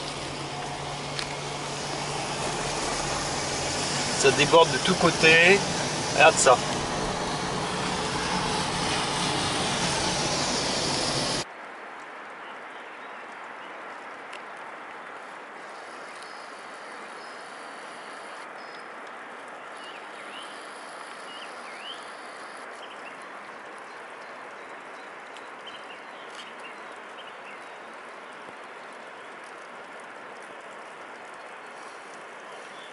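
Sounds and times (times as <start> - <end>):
car engine and tyre noise: 0.0 - 11.5
steady outdoor rush: 0.0 - 11.5.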